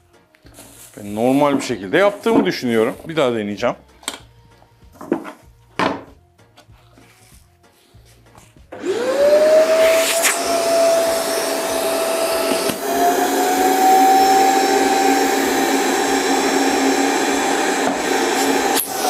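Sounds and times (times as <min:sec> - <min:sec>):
vacuum cleaner motor whine: 0:08.8 - 0:19.0.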